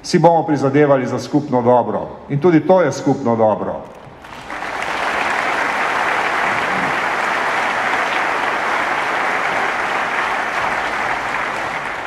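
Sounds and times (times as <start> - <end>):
large audience applauding: 4.1 - 12.0.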